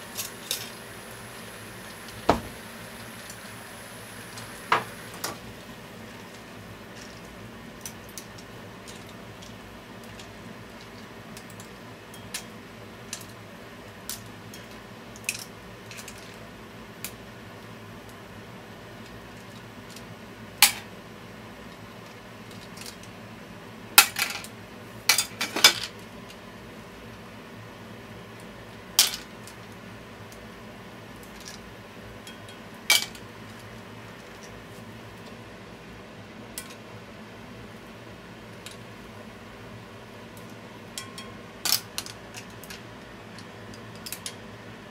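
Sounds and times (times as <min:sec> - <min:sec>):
steady low hum: 0:00.0 - 0:08.9
faint steady hum: 0:00.0 - 0:44.9.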